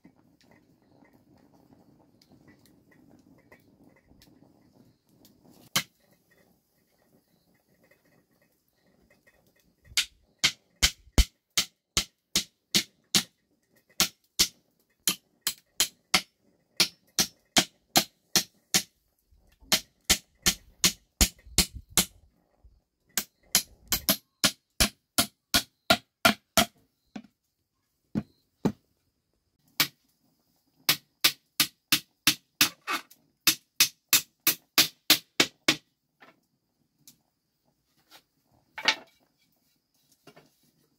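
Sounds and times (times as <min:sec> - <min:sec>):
hammer driving nails into wood: 0:10.0 - 0:13.3, 0:14.0 - 0:18.9, 0:19.7 - 0:22.1, 0:23.2 - 0:27.3, 0:30.9 - 0:35.9.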